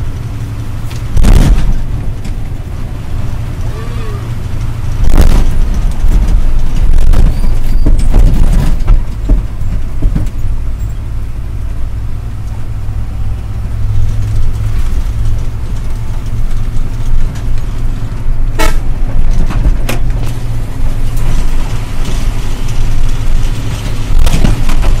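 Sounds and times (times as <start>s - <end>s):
diesel truck engine droning: 0.0s - 25.0s.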